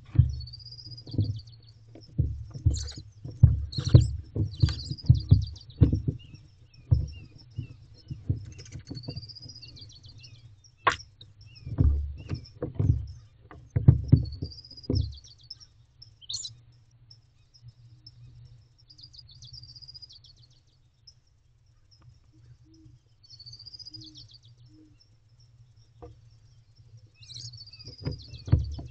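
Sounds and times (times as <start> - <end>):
thumps and scuffling on wood: 0.0 - 10.1, 10.8 - 15.3, 27.8 - 28.9
small bird singing: 0.0 - 28.9.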